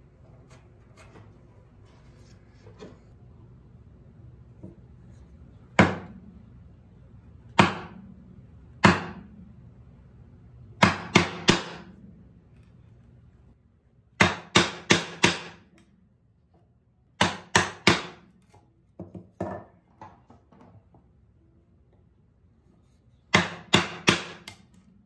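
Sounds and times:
wooden mallet striking chisel: 0:07.6 - 0:08.0, 0:08.8 - 0:09.3, 0:10.8 - 0:11.9, 0:14.2 - 0:15.6, 0:17.2 - 0:18.2, 0:23.3 - 0:24.7.

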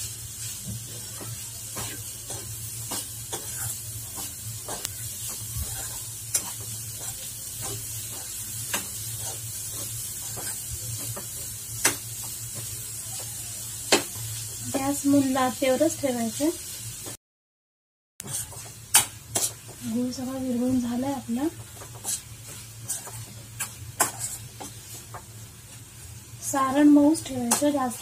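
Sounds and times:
faint sizzle: 0:00.0 - 0:17.2, 0:18.2 - 0:28.0
spoon scraping in pan: 0:00.3 - 0:13.3, 0:18.2 - 0:19.8, 0:21.6 - 0:25.3, 0:27.4 - 0:28.0.

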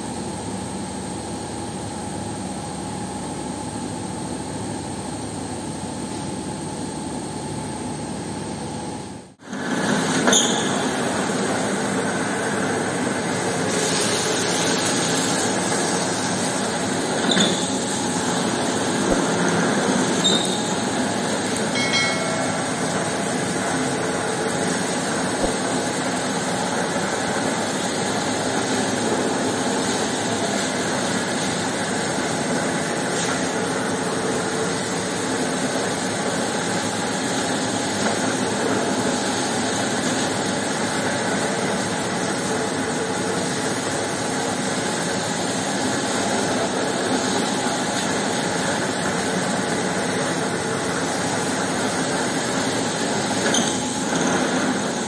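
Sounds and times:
carpet washing machine running: 0:00.0 - 0:55.0
water spraying from a hose: 0:09.7 - 0:21.7, 0:23.2 - 0:55.0.

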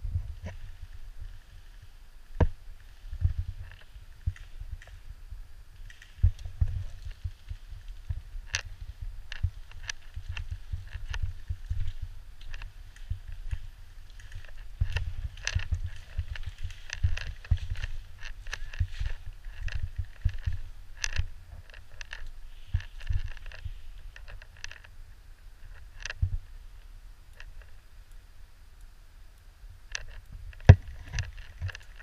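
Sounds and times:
leaves brushing: 0:05.7 - 0:25.0
sharp clicks: 0:05.8 - 0:08.7
footsteps in wet grass: 0:05.8 - 0:24.8
gear jostling: 0:05.8 - 0:24.9.

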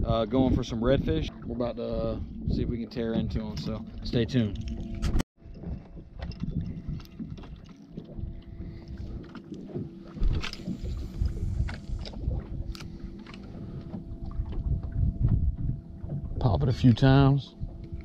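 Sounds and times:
water lapping around boat: 0:00.0 - 0:18.0
wind buffeting microphone: 0:00.0 - 0:18.0
faint steady hum: 0:06.5 - 0:18.0.

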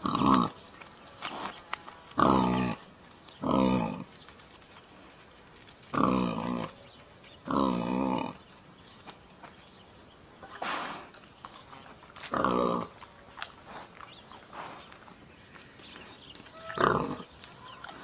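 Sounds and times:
wild boar calling: 0:02.2 - 0:04.1, 0:05.9 - 0:08.4, 0:12.2 - 0:13.8, 0:16.5 - 0:18.0.

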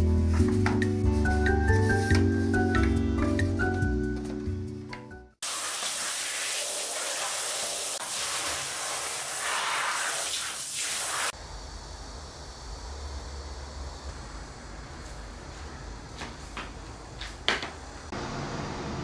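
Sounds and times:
soft background music: 0:00.0 - 0:05.4
water spraying onto sponge: 0:05.4 - 0:11.4.

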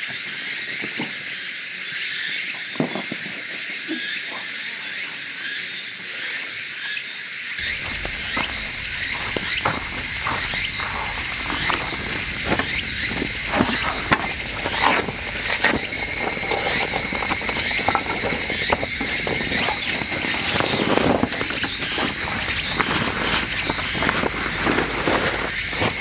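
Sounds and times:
insects buzzing chorus: 0:00.0 - 0:26.0
pure whining tone: 0:07.6 - 0:26.0.

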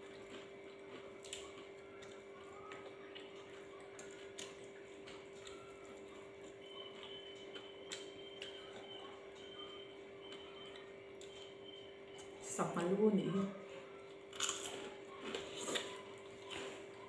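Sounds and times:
eating by hand: 0:00.0 - 0:12.5, 0:13.2 - 0:17.0.

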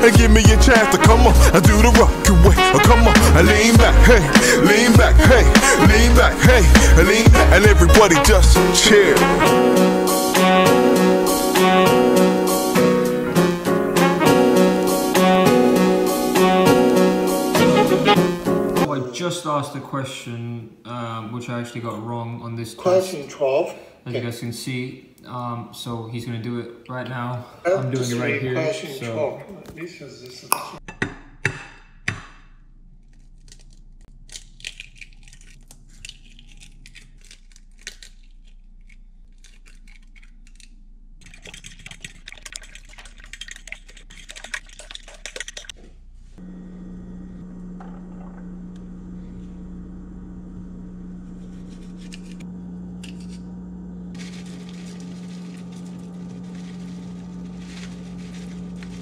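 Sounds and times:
eggs cracking on a plate: 0:30.6 - 0:45.8
fork beating eggs on a plate: 0:34.4 - 0:45.8
steady low hum: 0:45.9 - 0:59.0.

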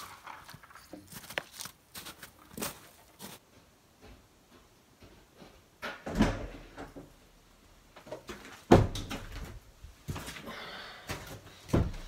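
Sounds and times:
rustling: 0:00.0 - 0:03.4
door opening with a clunk: 0:05.8 - 0:07.0.

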